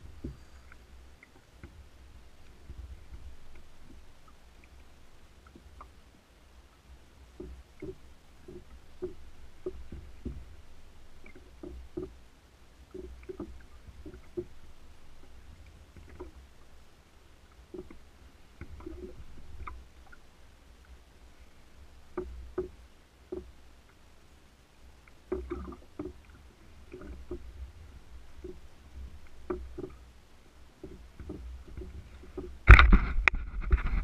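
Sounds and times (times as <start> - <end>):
water lapping against kayak hull: 0.0 - 34.0
wind rumble on microphone: 30.8 - 34.0.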